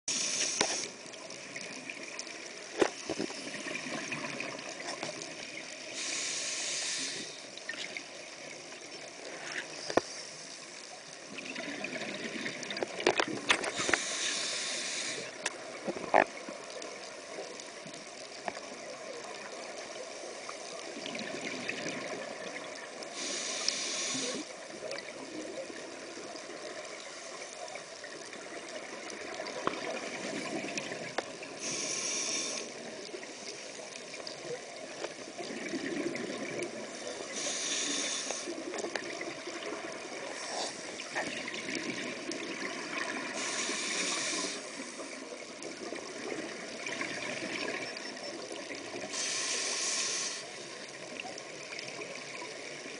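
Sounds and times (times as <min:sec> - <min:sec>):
faint clicks: 0:07.1 - 0:11.6, 0:12.5 - 0:21.0
muffled underwater noise: 0:23.1 - 0:51.2.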